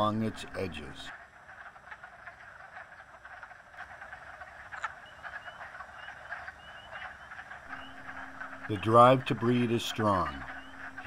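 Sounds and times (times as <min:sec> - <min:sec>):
frogs clucking chorus: 0:00.0 - 0:11.0
high rising chirps: 0:07.7 - 0:11.0.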